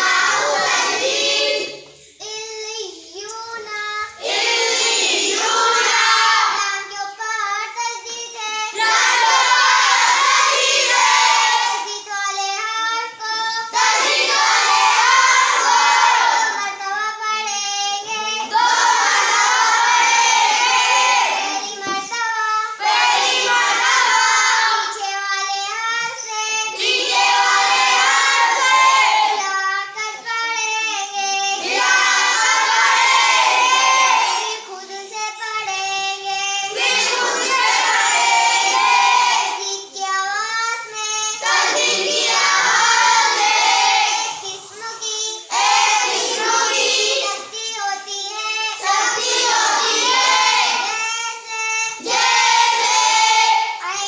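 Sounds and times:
girl chanting syllables: 0.0s - 33.1s
children repeating in unison: 0.0s - 54.0s.

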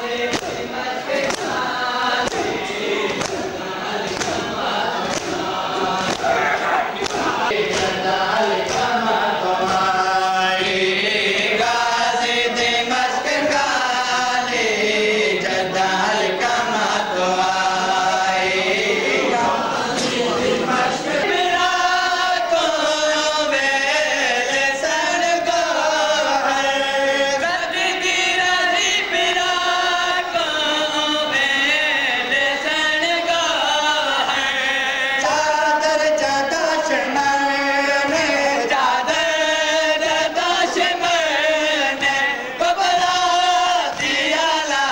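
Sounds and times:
men chanting a lament: 0.0s - 44.9s.

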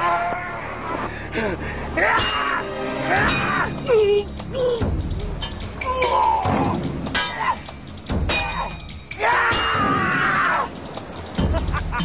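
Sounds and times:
background music: 0.0s - 12.0s
wordless shouted cries: 2.0s - 4.3s, 5.8s - 7.7s, 8.5s - 10.7s.

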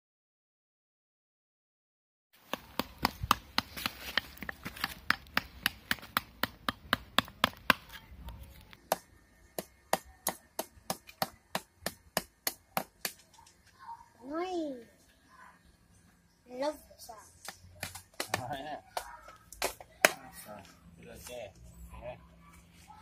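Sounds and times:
axe chopping wood: 2.5s - 8.0s, 8.8s - 13.3s, 17.5s - 20.3s.

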